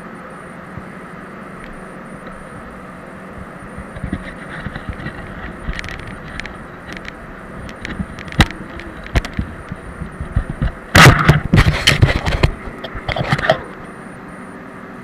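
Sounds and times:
air extraction rushing hum: 0:00.0 - 0:15.0
handling and rubbing noise: 0:03.4 - 0:13.8.

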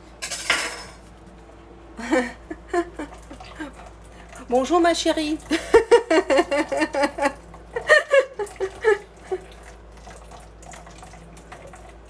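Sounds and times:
person talking: 0:04.4 - 0:05.5.

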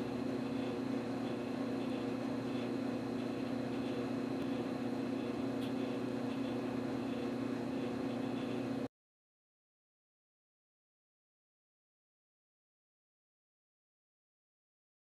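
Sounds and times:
machine hum low drone: 0:00.0 - 0:08.9.

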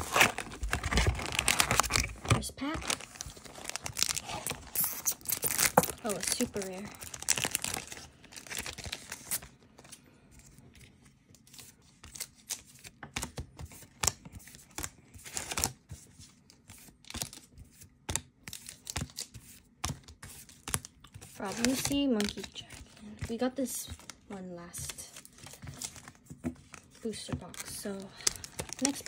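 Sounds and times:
foil wrapper crinkling: 0:00.0 - 0:10.0, 0:18.5 - 0:29.0.

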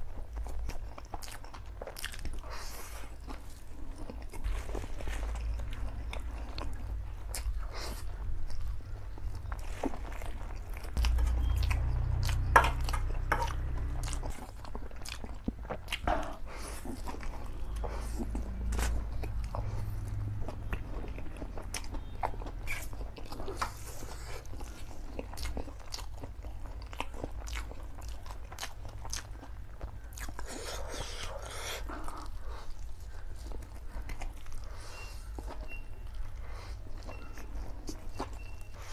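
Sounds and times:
man chewing and slurping noodles: 0:00.0 - 0:38.9
low rumble: 0:04.7 - 0:14.7.

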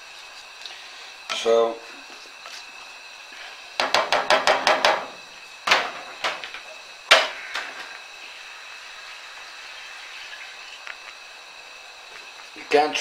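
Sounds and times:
spatula knocking on frying pan: 0:03.8 - 0:05.1.

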